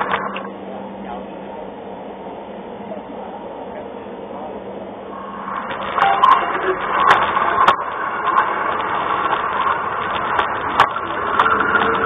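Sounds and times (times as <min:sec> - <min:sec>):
wheels clicking on rails: 0:00.0 - 0:01.5, 0:02.9 - 0:12.0
model train motor whir: 0:05.2 - 0:12.0.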